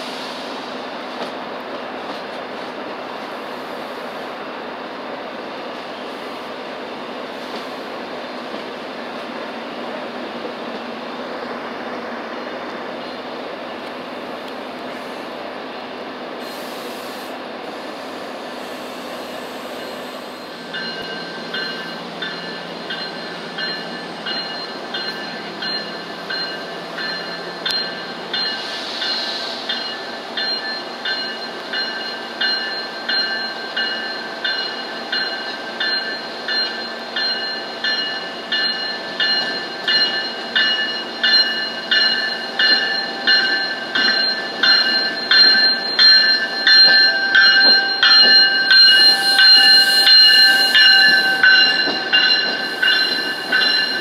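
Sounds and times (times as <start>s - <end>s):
rail noise rumble: 0.0s - 54.0s
train bell ringing: 19.0s - 54.0s.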